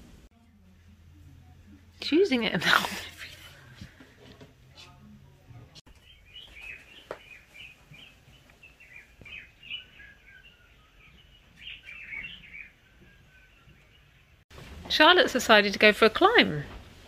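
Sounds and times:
birds chirping: 5.9 - 14.4.

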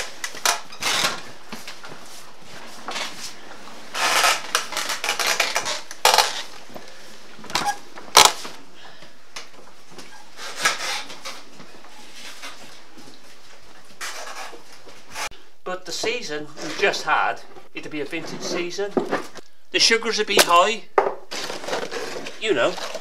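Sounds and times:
stone wheel crushing fruit: 21.3 - 23.0.

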